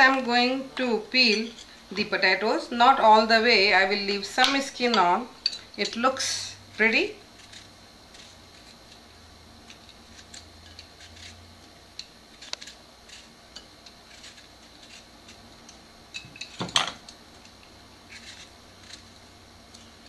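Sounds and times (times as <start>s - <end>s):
peeler scraping potato skin: 5.5s - 20.0s.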